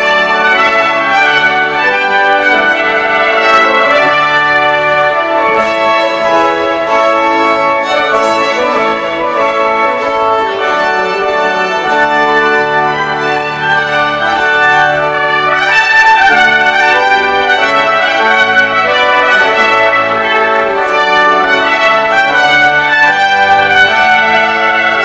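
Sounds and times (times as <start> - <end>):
stately brass music: 0.0 - 25.0.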